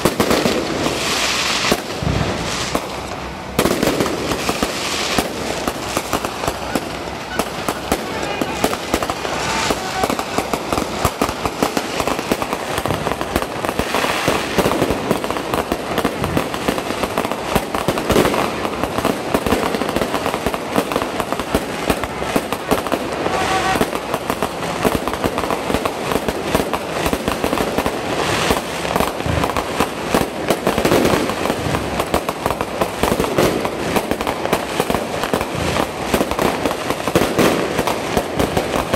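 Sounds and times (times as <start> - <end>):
fireworks bangs and crackles: 0.0 - 38.9.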